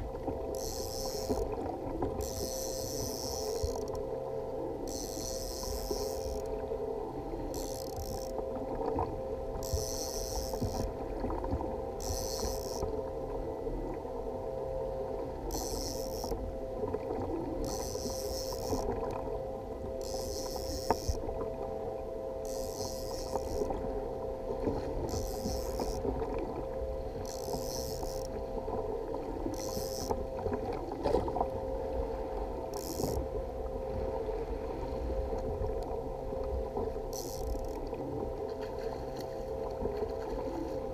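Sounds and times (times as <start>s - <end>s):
low hum: 0.0s - 40.9s
sea and wind rumble: 0.0s - 40.9s
fishing reel cranking: 0.5s - 1.5s, 2.2s - 4.0s, 4.8s - 6.5s, 7.5s - 8.4s, 9.6s - 10.9s, 12.0s - 12.9s, 15.5s - 16.4s, 17.6s - 18.9s, 20.0s - 21.2s, 22.4s - 23.7s, 25.1s - 26.0s, 27.2s - 28.4s, 29.5s - 30.2s, 32.7s - 33.2s, 37.1s - 37.8s.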